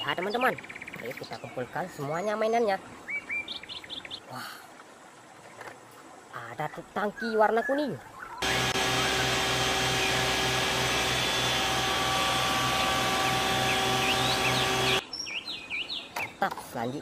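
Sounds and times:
pump machine hum: 0:08.4 - 0:15.0.

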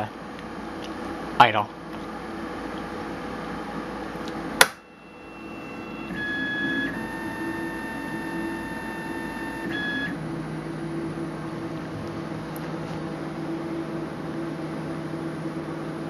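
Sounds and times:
lower hum: 0:00.0 - 0:16.0
machine hum: 0:00.0 - 0:16.0
printer motors whining: 0:02.0 - 0:13.8.

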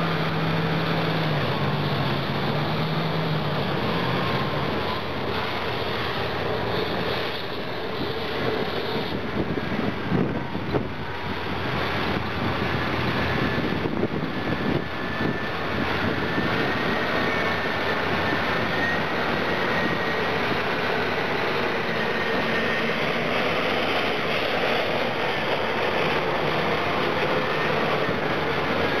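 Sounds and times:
faint high whine: 0:00.0 - 0:29.0
heavy diesel machine driving past: 0:00.0 - 0:29.0.

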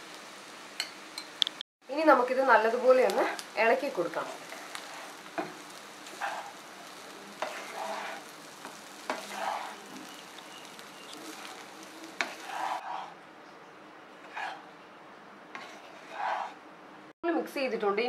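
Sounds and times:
light sizzle: 0:00.0 - 0:13.1
spatula scraping rice in pan: 0:04.2 - 0:13.2, 0:14.2 - 0:14.6, 0:15.5 - 0:16.6.

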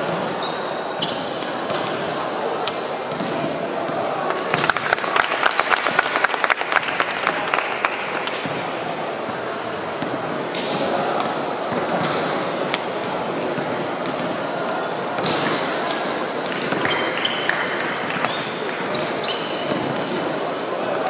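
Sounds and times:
crowd chatter: 0:00.0 - 0:21.0
shoe squeaks on court floor: 0:00.3 - 0:01.4, 0:18.2 - 0:20.8.

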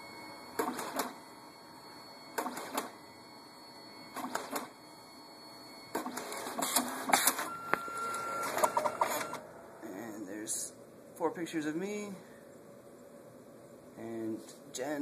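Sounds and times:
printer motor whir: 0:00.0 - 0:09.8
printer mechanical clatter: 0:00.6 - 0:01.2, 0:02.3 - 0:03.0, 0:04.1 - 0:04.7, 0:05.9 - 0:07.5, 0:08.1 - 0:09.4.

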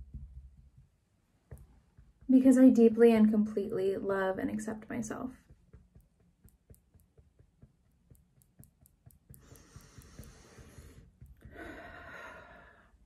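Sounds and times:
fingertips tapping on sweater: 0:00.0 - 0:02.5, 0:05.4 - 0:12.3
person breathing in: 0:09.4 - 0:13.0.

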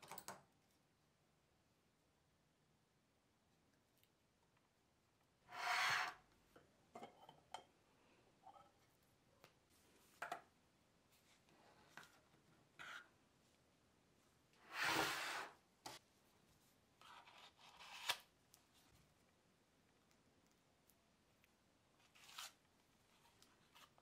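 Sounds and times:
spatula scraping filler on metal: 0:05.5 - 0:06.2.

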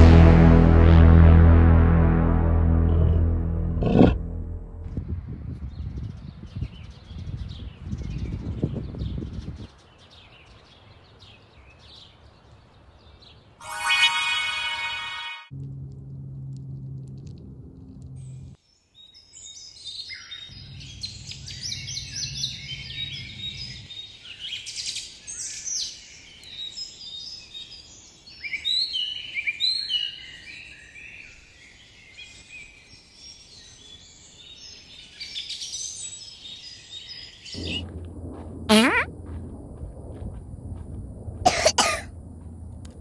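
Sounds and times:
loud sudden falling sweeps: 0:00.0 - 0:05.2, 0:37.6 - 0:39.7.

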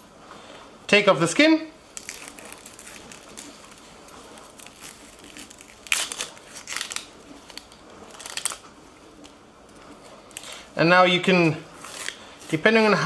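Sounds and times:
onion skin crackling and tearing: 0:01.8 - 0:10.7, 0:11.7 - 0:12.8.

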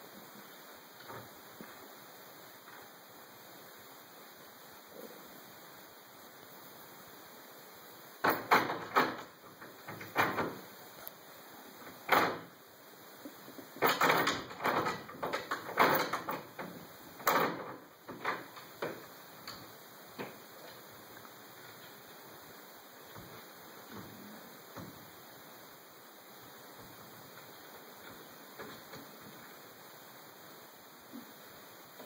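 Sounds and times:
door latch and handle knocking: 0:08.2 - 0:09.3, 0:12.1 - 0:12.5, 0:13.8 - 0:19.0
wooden door rattling in frame: 0:08.2 - 0:10.7, 0:11.8 - 0:12.6, 0:13.8 - 0:20.5.

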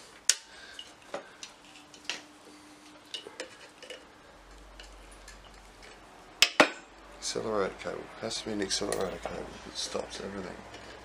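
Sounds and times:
metal tools clicking and clinking: 0:08.8 - 0:09.4.

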